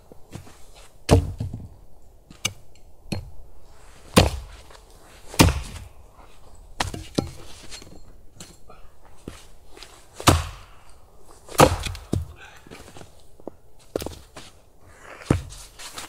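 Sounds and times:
axe chopping wood: 1.1 - 1.7, 4.1 - 4.6, 5.3 - 5.9, 10.2 - 10.8, 11.5 - 12.3.

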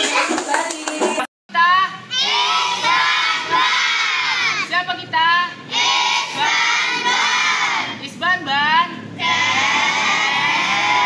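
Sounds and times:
children shouting a cheer: 2.1 - 4.7, 9.2 - 11.0.

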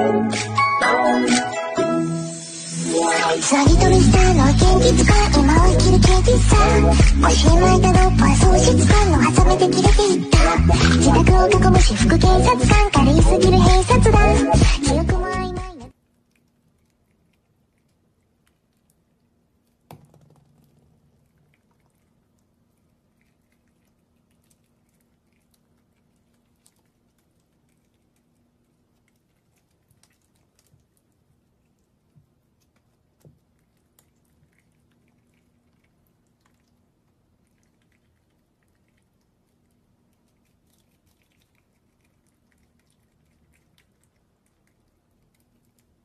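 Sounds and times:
faint steady hum: 3.5 - 46.0
prairie dog nibbling clicks: 16.1 - 19.9, 21.0 - 46.0.

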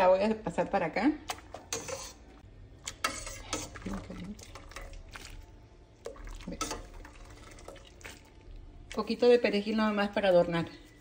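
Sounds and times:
utensil clinking against pot and pan: 2.9 - 5.0, 6.1 - 7.9.

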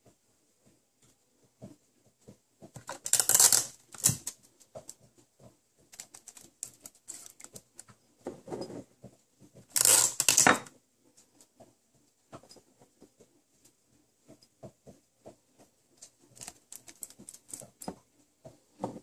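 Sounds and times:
sticky tape rasping: 2.8 - 5.0, 9.7 - 10.5, 16.2 - 17.8.

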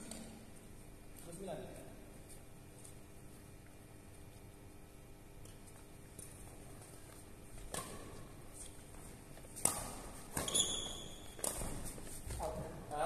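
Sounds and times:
rackets hitting shuttlecock: 7.6 - 12.5
shoe squeak on court floor: 10.4 - 11.8.

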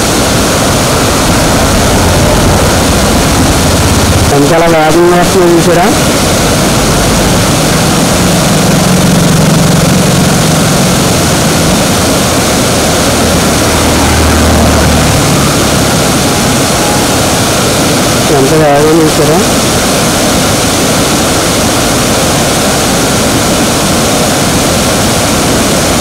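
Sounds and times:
floodwater rushing over rocks: 0.0 - 26.0.

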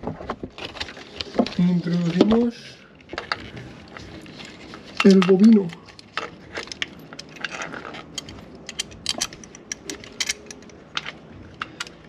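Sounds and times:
light metallic clicks and scrapes: 3.0 - 12.0.

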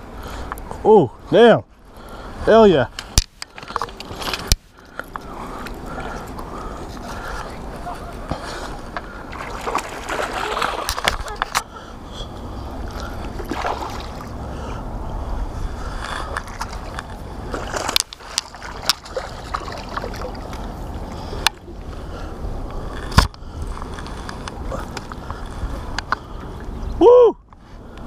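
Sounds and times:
wind rumbling on microphone: 2.2 - 28.0
fish splashing in water: 9.1 - 11.6, 12.8 - 14.5, 16.2 - 21.5.

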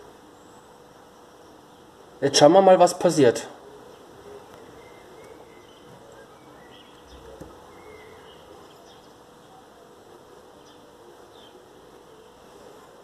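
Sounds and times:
faint outdoor hiss and hum: 0.0 - 13.0
faint bird chirps: 3.6 - 12.6.

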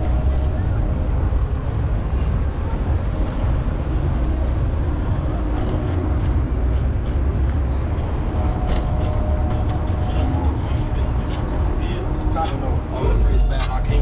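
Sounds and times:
passing vehicles rumbling: 0.0 - 14.0.

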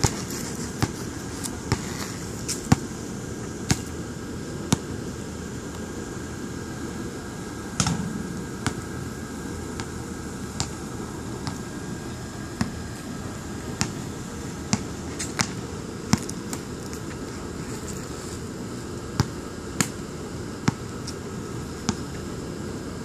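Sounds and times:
low background rumble: 6.2 - 15.0
basketball bouncing on court: 7.8 - 9.2.

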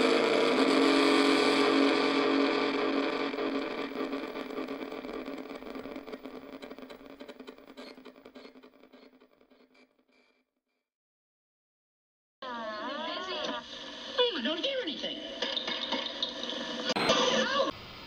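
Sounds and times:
buzzy electronic drone: 0.0 - 9.3
electronic crackles: 0.0 - 10.1.

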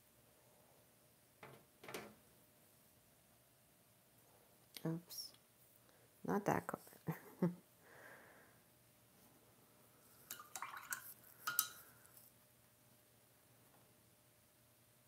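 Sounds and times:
brush swishing in water: 10.3 - 11.8
glass clinks and splashes: 10.3 - 11.9.

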